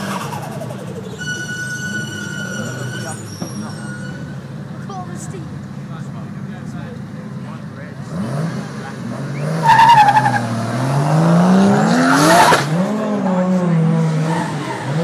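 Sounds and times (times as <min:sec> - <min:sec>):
tyre squeal: 0:00.0 - 0:04.5, 0:09.4 - 0:10.6
car engine revving: 0:00.0 - 0:15.0.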